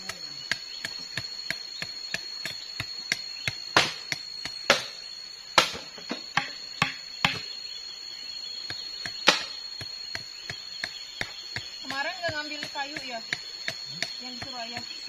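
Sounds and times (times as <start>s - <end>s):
wooden knocks and chops: 0.0s - 5.0s, 5.6s - 7.5s, 8.7s - 15.0s
high insect whine: 0.0s - 15.0s.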